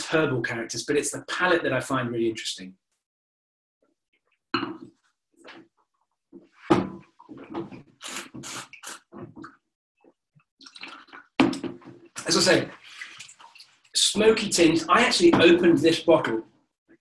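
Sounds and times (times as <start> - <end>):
wine slurping: 7.5 - 9.4.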